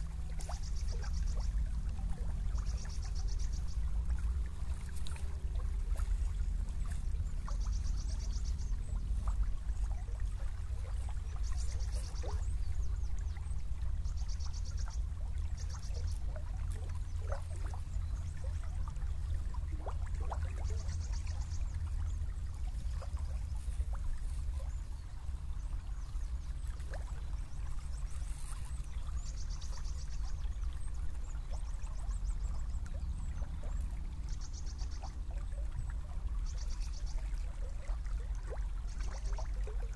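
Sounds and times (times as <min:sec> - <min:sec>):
low rumble: 0:00.0 - 0:39.3
river water trickling and gurgling: 0:00.0 - 0:39.9.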